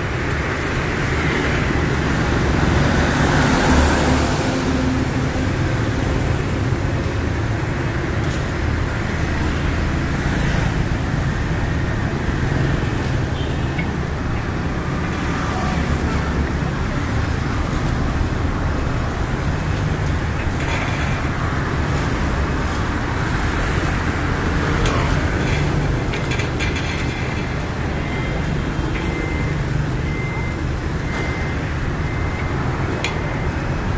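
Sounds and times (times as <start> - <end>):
scooters and cars passing: 0.0 - 33.9.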